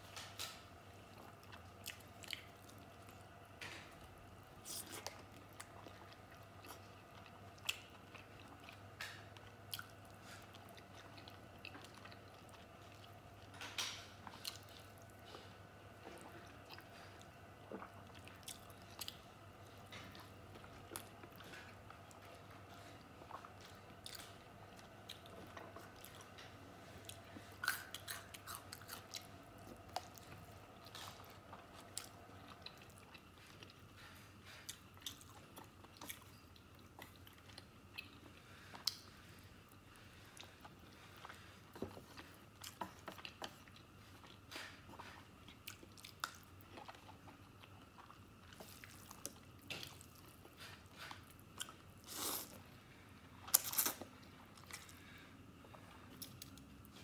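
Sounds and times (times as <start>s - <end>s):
person chewing with mouth smacks: 4.6s - 52.6s, 53.4s - 57.0s.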